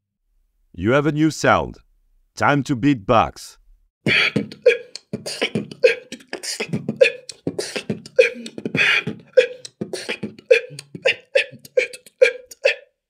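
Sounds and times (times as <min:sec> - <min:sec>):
person beatboxing: 0:04.1 - 0:13.0.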